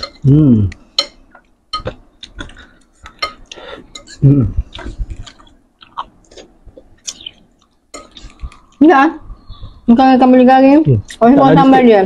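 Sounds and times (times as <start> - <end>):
cutlery scraping a bowl: 1.8 - 4.2, 7.9 - 8.4.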